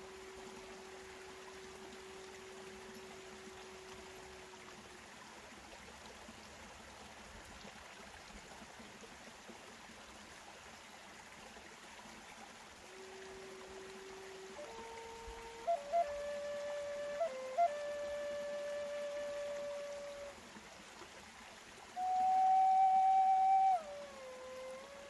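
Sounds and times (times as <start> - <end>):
flute low steady note: 0.0 - 4.7, 12.9 - 20.4, 22.0 - 25.0
steady hiss: 0.0 - 25.0.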